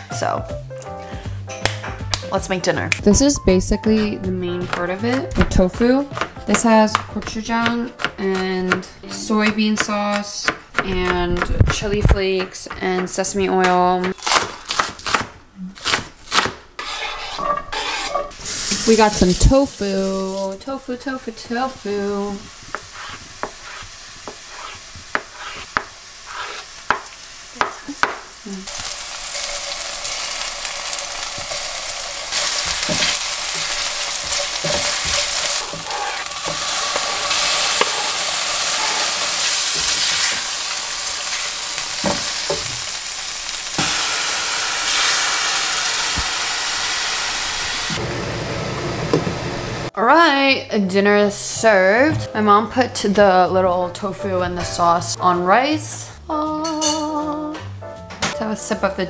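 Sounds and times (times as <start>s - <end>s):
food sizzling in frying pan: 18.3s - 20.6s, 21.5s - 49.9s
stirring knocks: 32.3s - 40.4s.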